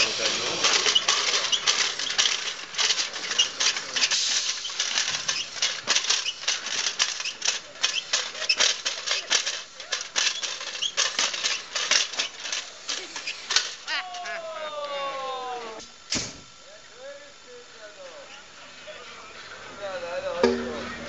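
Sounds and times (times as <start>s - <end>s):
metal robot clattering: 0.0s - 13.8s.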